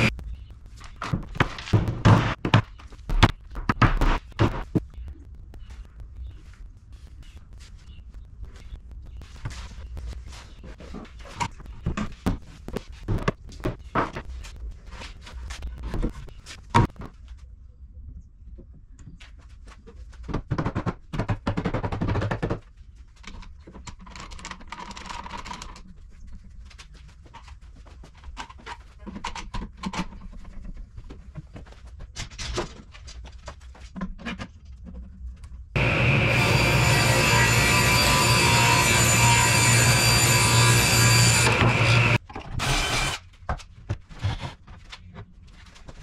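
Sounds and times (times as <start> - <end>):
wooden panels knocking and thudding: 1.0 - 4.8.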